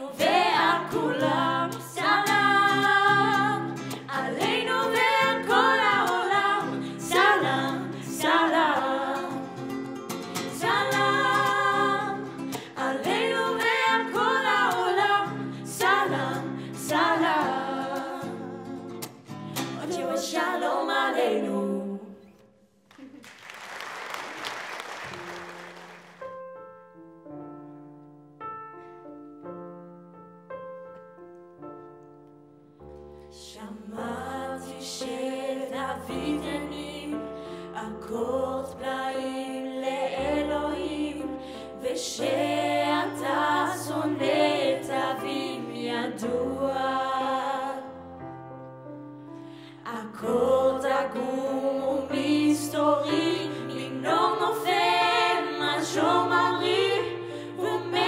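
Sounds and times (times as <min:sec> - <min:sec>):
women singing in harmony: 0:00.0 - 0:19.0, 0:19.6 - 0:22.4, 0:33.4 - 0:48.2, 0:49.8 - 0:58.0
digital piano: 0:25.2 - 0:58.0.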